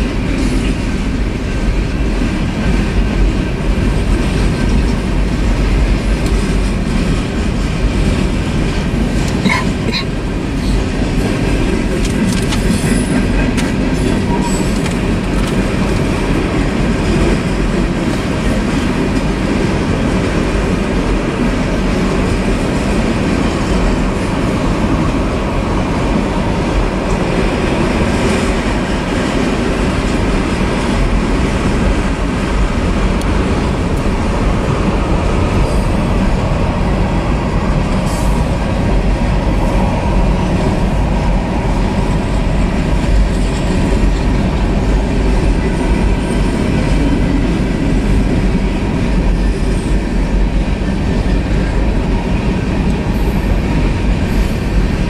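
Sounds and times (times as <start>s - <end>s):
freight cars rumbling and rattling: 0.0s - 55.0s.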